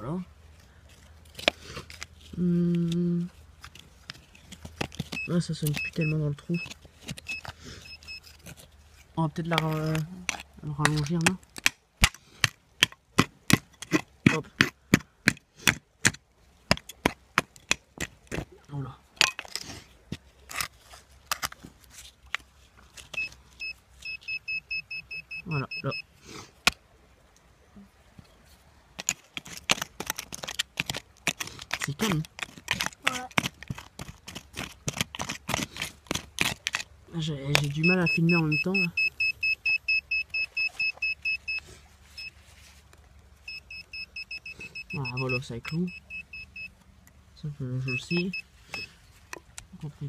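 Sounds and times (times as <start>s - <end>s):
digging in soil and stones: 0.0s - 50.0s
metal detector beeping: 5.1s - 8.3s, 23.1s - 26.1s, 37.5s - 42.4s, 43.4s - 46.8s, 47.8s - 49.0s.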